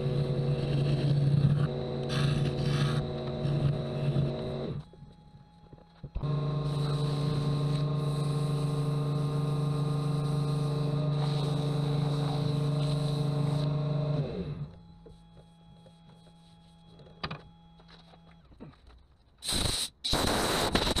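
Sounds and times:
wood lathe motor humming: 0.0 - 17.0
sandpaper hissing on spinning wood: 6.7 - 13.7.

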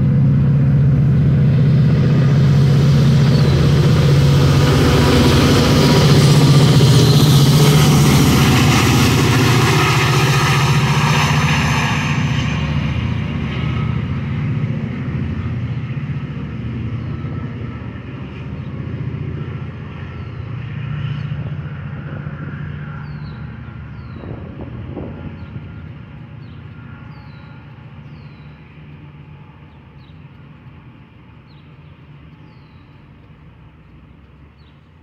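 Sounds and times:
train wheel noise: 0.0 - 20.8
diesel locomotive engine drone: 0.0 - 35.0.

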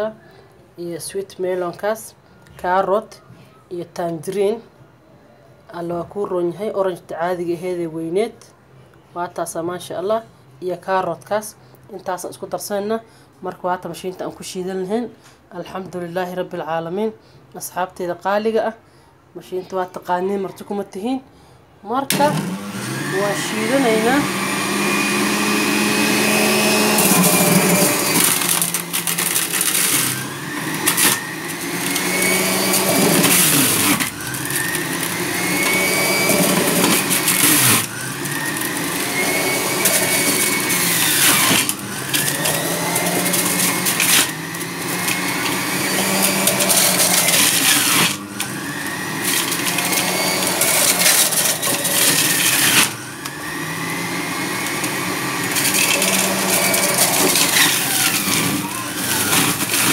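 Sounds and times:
juicer motor whining and grinding: 22.1 - 59.9.

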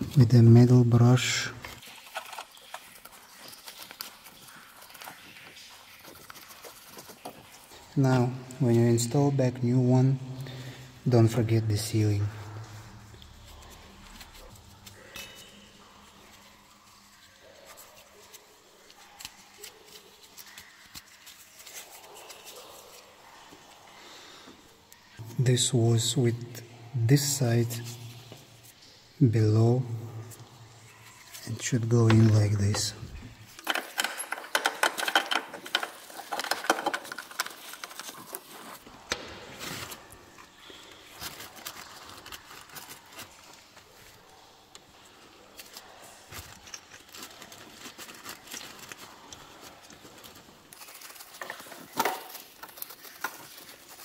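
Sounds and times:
light clicks and rustling: 30.4 - 40.0.

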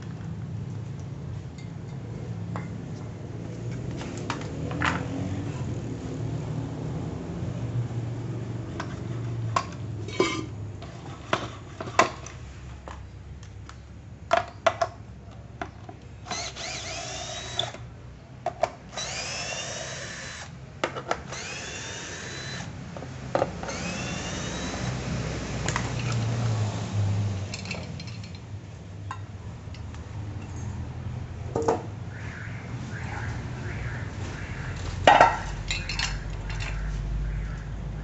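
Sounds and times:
cordless drill whining: 16.3 - 17.8, 18.9 - 20.5, 21.3 - 22.7, 23.6 - 25.0
metal parts knocking and clinking: 27.5 - 28.5, 35.1 - 36.8.

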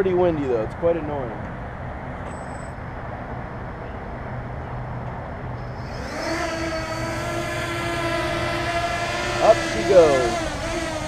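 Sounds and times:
drone motors whining: 5.6 - 11.0.

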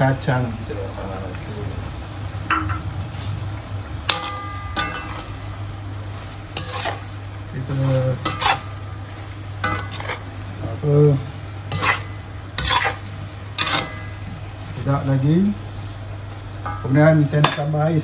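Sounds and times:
utensil scraping a pan: 4.1 - 5.4, 6.5 - 10.3, 11.7 - 14.2.

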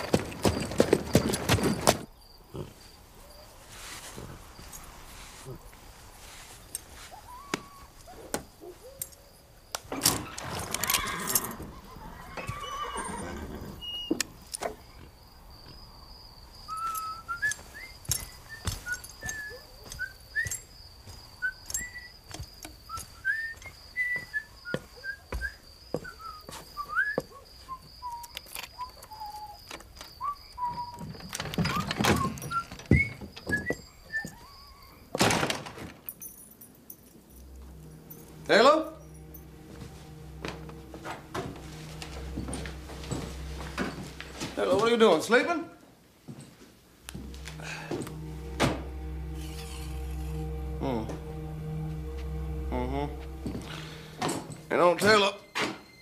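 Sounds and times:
insect trill: 0.0 - 45.4, 47.0 - 56.0
horse blowing and whinnying: 10.3 - 13.9.

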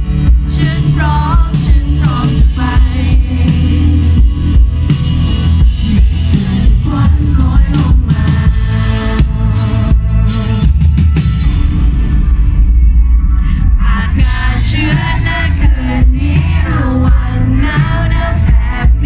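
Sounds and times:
live pop-rock band playing: 0.0 - 19.0
lead vocal singing: 0.1 - 9.3, 13.4 - 19.0.

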